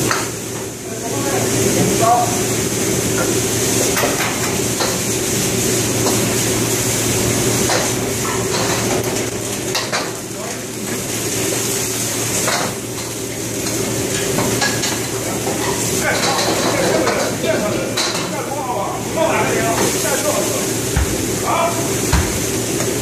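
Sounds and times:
food sizzling: 0.0 - 23.0
wok burners and extraction hood: 0.0 - 23.0
metal ladles clanking in woks: 12.4 - 18.3.

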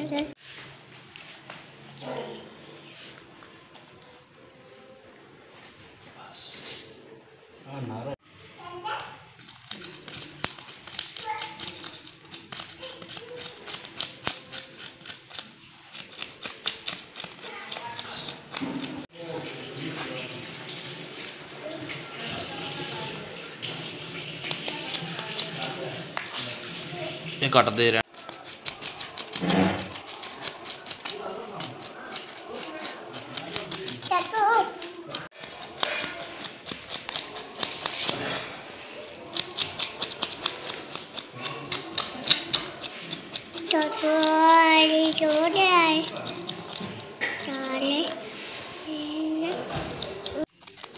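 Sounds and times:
knife scraping fish scales: 9.4 - 19.1, 28.0 - 48.3, 49.6 - 50.9.

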